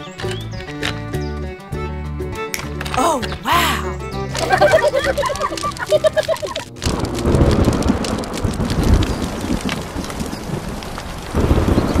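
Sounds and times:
steady rain: 0:04.4 - 0:12.0
rolling thunder: 0:06.7 - 0:12.0.

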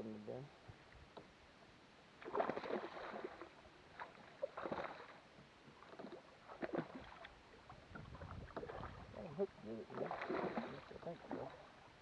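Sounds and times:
water slapping against boat hull: 0:09.9 - 0:11.5.

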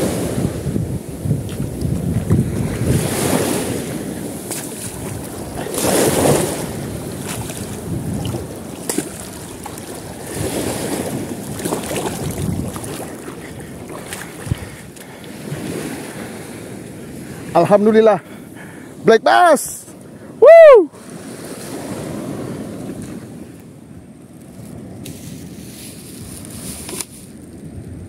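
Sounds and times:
water splashing at shoreline: 0:00.0 - 0:17.6
wind buffeting microphone: 0:00.0 - 0:19.0.

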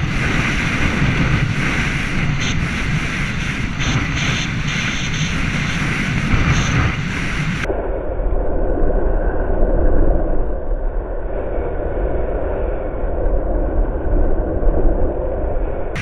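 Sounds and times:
wind roaring over camera: 0:00.0 - 0:16.0.

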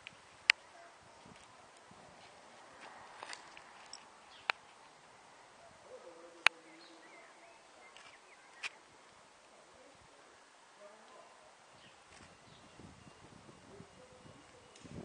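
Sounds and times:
faint bird chirps: 0:05.8 - 0:08.9.

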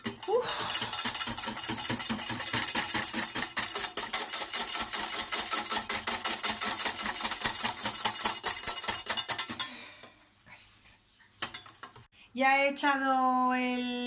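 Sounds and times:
whisk clicking against pan: 0:00.0 - 0:09.7, 0:11.4 - 0:12.1.

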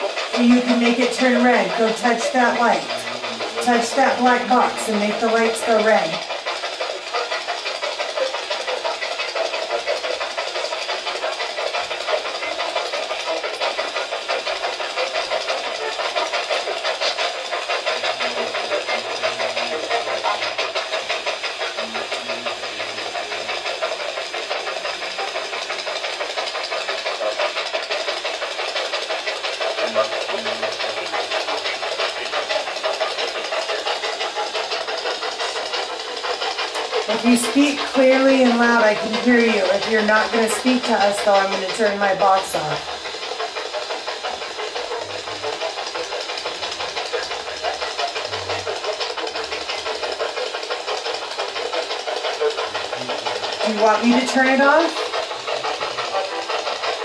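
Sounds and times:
choppy radio static hiss: 0:00.0 - 0:07.6, 0:11.3 - 0:24.4, 0:29.5 - 0:48.9, 0:52.5 - 0:56.7
radio scanning static: 0:00.4 - 0:06.2.

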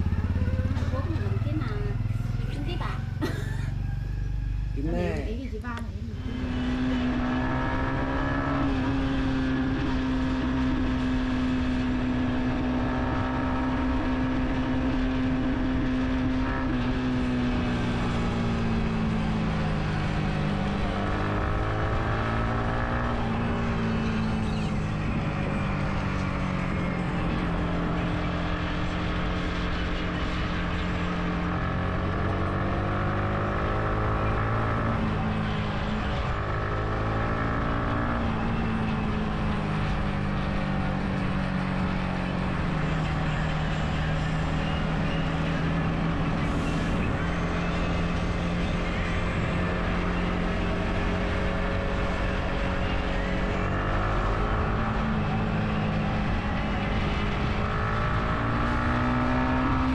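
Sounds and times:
motorbike engine running: 0:00.0 - 0:08.2.

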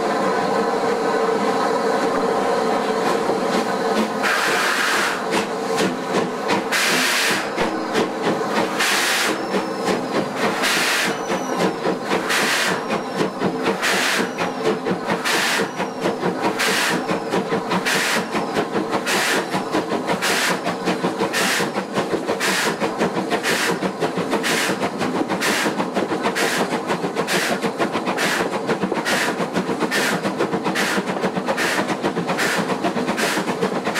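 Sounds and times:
steam locomotive exhaust beats: 0:00.0 - 0:33.9.

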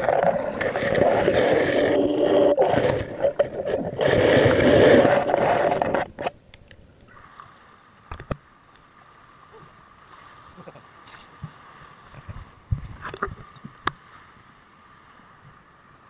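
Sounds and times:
water rushing and bubbling: 0:00.0 - 0:06.3.

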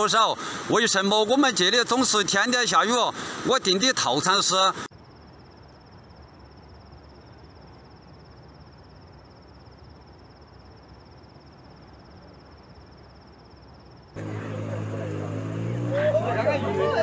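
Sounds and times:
pulsing insect trill: 0:03.7 - 0:17.0.

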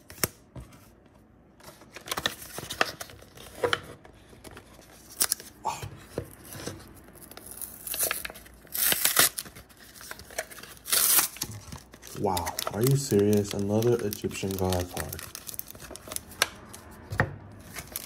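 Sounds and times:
foil wrapper tearing and crinkling: 0:07.2 - 0:16.7, 0:17.6 - 0:18.0.

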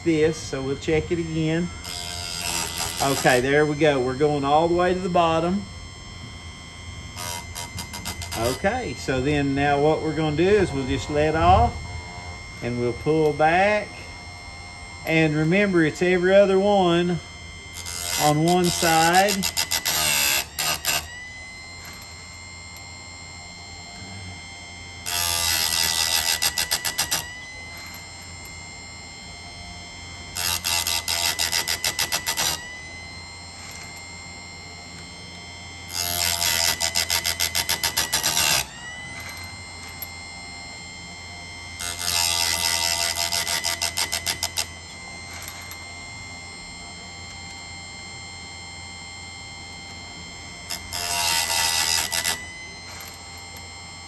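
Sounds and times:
grinding wheel on chain teeth: 0:00.0 - 0:04.9, 0:07.2 - 0:11.7, 0:17.7 - 0:21.1, 0:25.0 - 0:28.1, 0:30.3 - 0:32.6, 0:35.9 - 0:40.1, 0:41.8 - 0:44.7, 0:50.7 - 0:53.2
grinder motor whine: 0:00.0 - 0:54.0.

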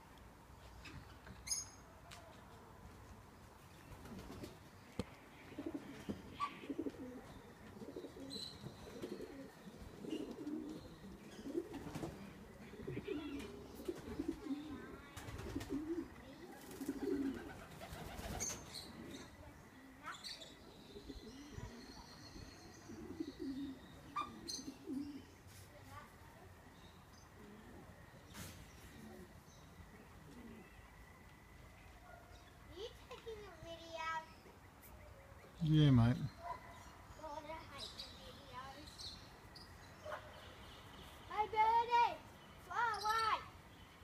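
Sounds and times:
pigeons cooing: 0:05.3 - 0:25.5, 0:28.7 - 0:30.9.

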